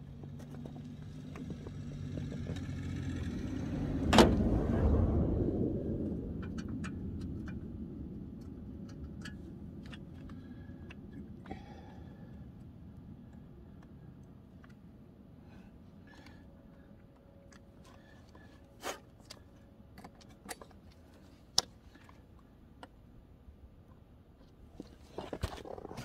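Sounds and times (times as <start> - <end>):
vehicle driving by: 1.4 - 8.0.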